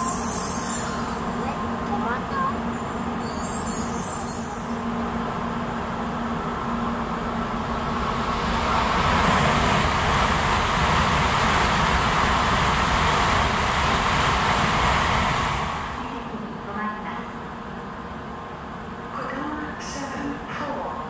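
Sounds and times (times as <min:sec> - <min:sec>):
train rushing past: 0:00.0 - 0:21.0.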